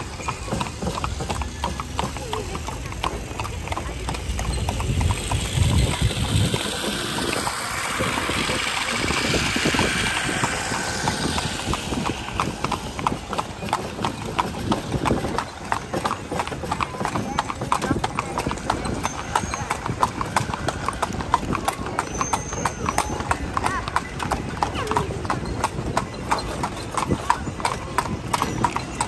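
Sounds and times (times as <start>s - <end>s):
horse hooves clip-clopping: 0.0s - 29.0s
rushing noise: 4.5s - 22.0s.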